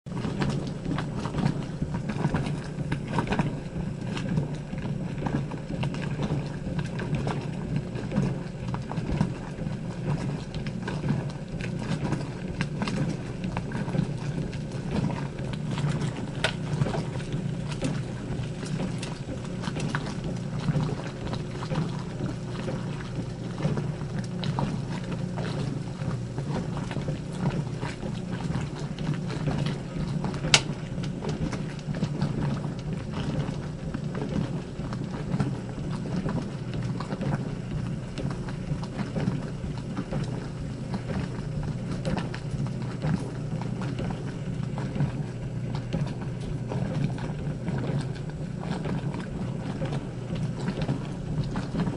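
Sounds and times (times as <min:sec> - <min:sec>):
washing machine humming: 0:00.0 - 0:51.9
washing machine clicks and knocks: 0:08.0 - 0:37.5.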